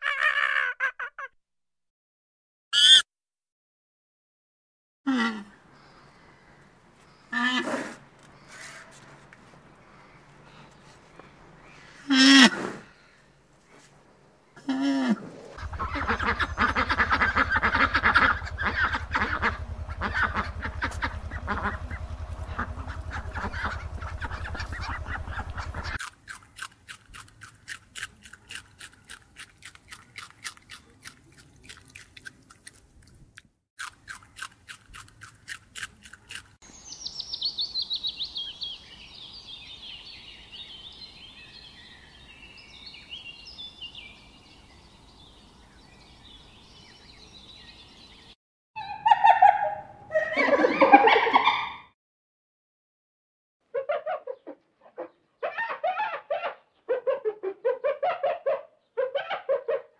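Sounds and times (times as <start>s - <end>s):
duck calling: 2.8s - 3.0s, 15.6s - 26.0s
low hum: 15.6s - 26.0s
rabbits chewing greens: 15.6s - 36.6s.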